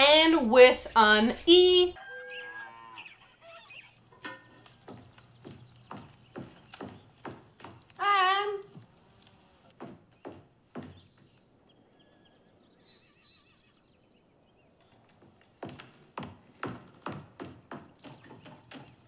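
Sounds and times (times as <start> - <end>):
faint bird chirps: 2.0 - 4.0, 10.9 - 15.0.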